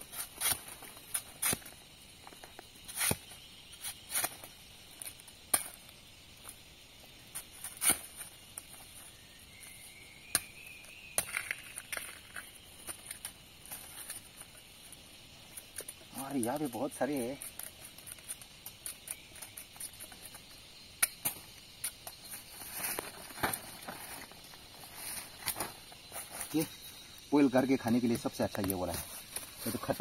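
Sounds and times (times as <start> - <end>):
steady high hiss: 0.0 - 30.0
machete chopping into ground: 0.1 - 1.8, 2.9 - 4.5, 7.7 - 8.2.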